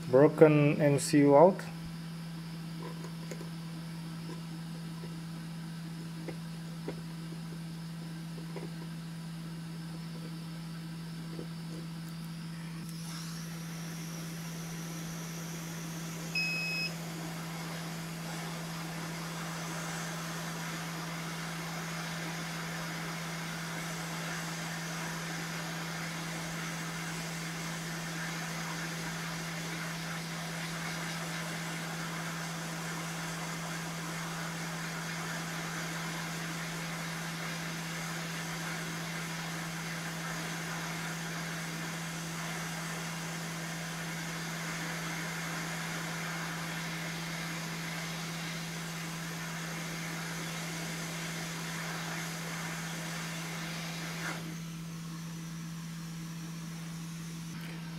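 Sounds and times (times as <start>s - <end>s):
hot air station airflow hiss: 12.5s - 57.9s
short beep: 16.4s - 17.0s.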